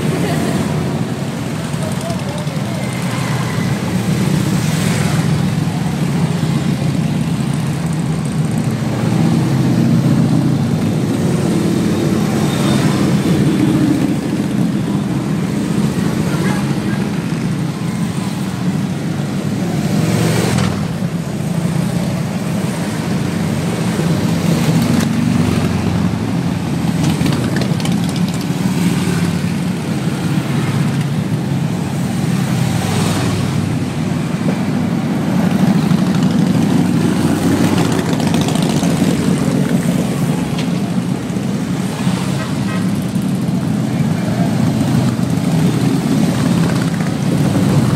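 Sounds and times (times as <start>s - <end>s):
motorcycles riding past: 0.0s - 47.9s.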